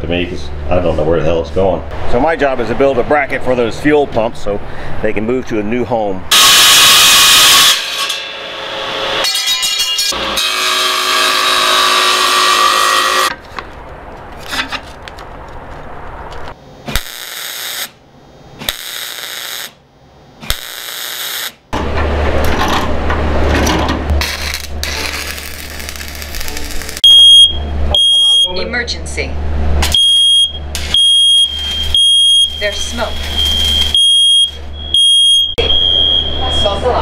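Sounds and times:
table saw cutting metal: 6.3 - 13.4
welder arc crackling: 16.9 - 18.0, 18.6 - 19.8, 20.4 - 21.6, 24.1 - 27.1.

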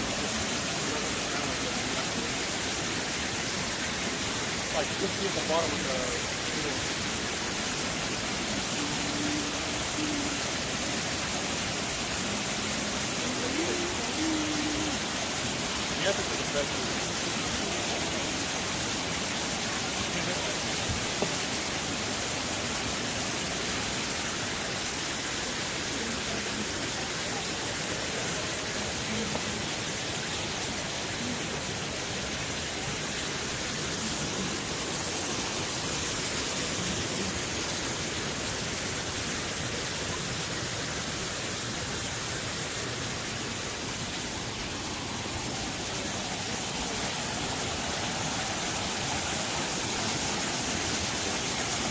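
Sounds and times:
falling water rushing hiss: 0.0 - 51.9.

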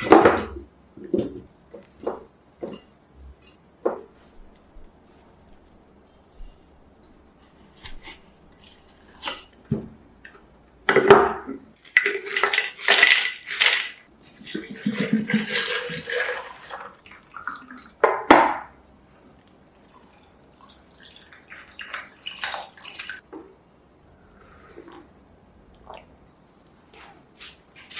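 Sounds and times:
liquid pouring: 14.4 - 17.9.

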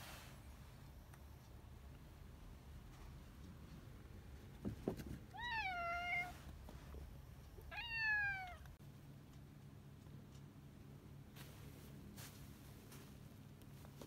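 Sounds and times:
cat meowing: 7.7 - 8.7.

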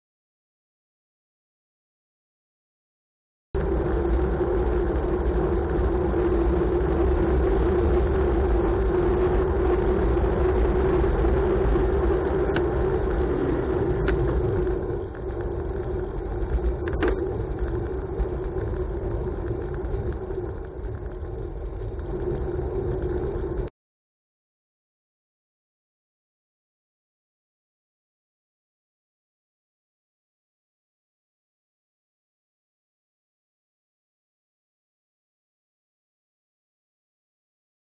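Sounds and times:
wind on microphone: 3.6 - 23.7.

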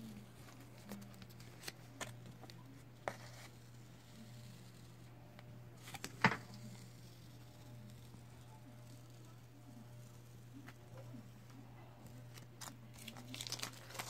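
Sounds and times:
tape peeling off paper: 12.3 - 14.0.

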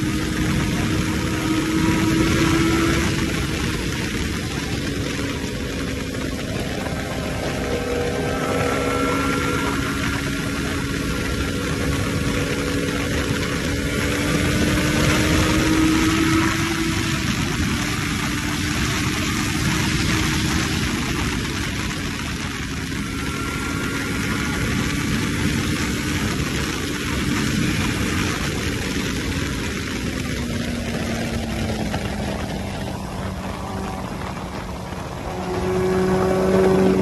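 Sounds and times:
motorcycle engine hum: 0.0 - 37.0
wind rush over microphone: 0.0 - 37.0.

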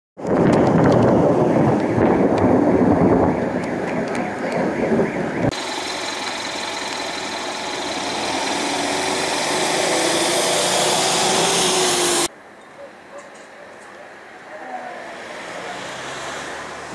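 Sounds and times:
thunder rumbling: 0.2 - 10.2.

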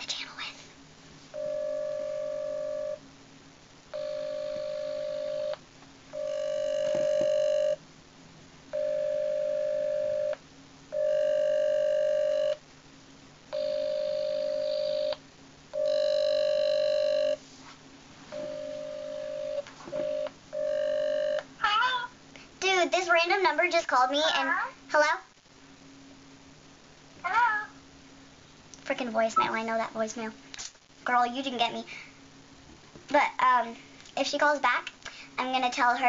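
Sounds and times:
phone ringing tone: 1.4 - 3.0, 4.0 - 5.6, 6.2 - 7.8, 8.7 - 10.4, 11.0 - 12.6, 13.6 - 15.2, 15.8 - 17.4, 18.3 - 22.1.

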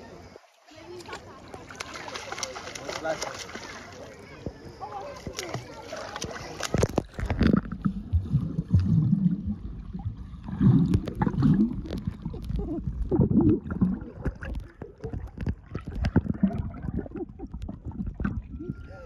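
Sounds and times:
muffled underwater bubbling: 6.4 - 19.0.

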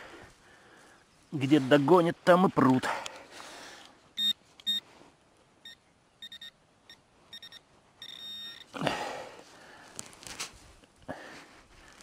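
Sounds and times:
metal detector pinpointer beeping: 4.2 - 4.8, 5.6 - 8.8
soil rustling: 7.2 - 12.0.

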